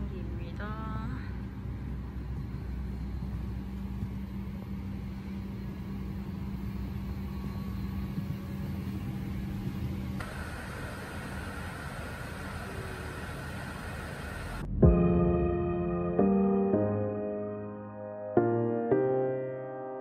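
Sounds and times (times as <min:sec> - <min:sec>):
aircraft cabin drone: 0:00.0 - 0:19.1
low rumble: 0:12.4 - 0:17.2.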